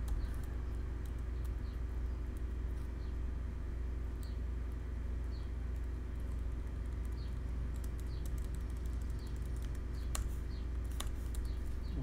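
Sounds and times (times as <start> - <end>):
low electrical hum: 0.0 - 12.0
keyboard keys clicking: 5.7 - 10.3.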